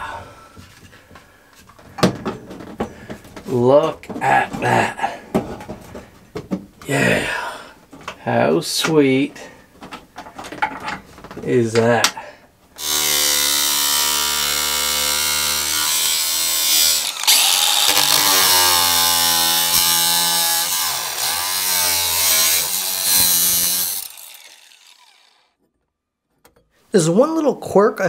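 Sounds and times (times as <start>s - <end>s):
angle grinder cutting steel: 12.8s - 25.6s.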